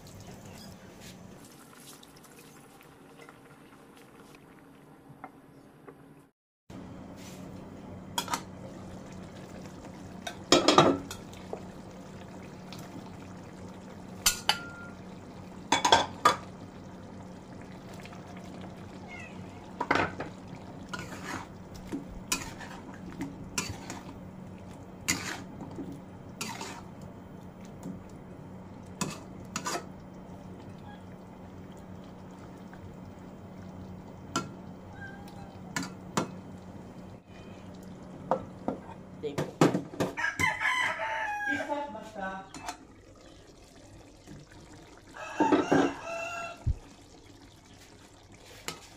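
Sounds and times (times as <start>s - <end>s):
steady low hum: 20.4s - 39.3s
metal spatula scraping a pan: 20.9s - 21.5s, 22.3s - 22.9s, 25.1s - 25.5s, 26.4s - 26.9s, 29.0s - 29.9s.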